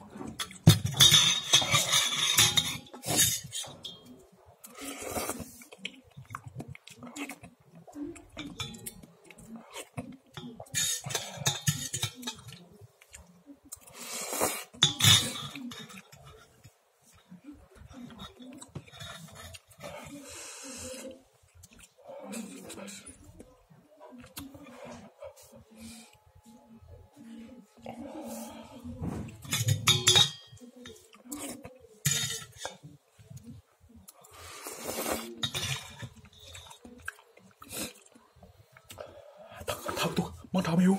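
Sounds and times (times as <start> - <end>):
metal fork clinking on dish: 0.4 - 4.1, 8.4 - 9.0, 10.5 - 12.6, 29.4 - 31.0, 32.0 - 32.8
chewing and mouth noises: 3.1 - 10.7, 15.8 - 26.2, 32.8 - 40.1
loud noodle slurps: 34.6 - 35.3.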